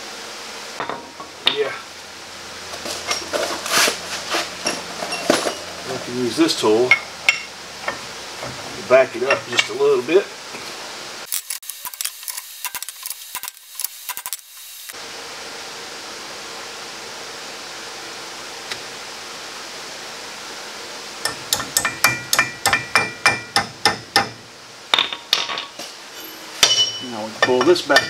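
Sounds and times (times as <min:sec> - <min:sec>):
steady faint hiss: 0:00.0 - 0:11.3, 0:15.0 - 0:28.0
ringing hammer taps on metal: 0:26.6 - 0:28.0.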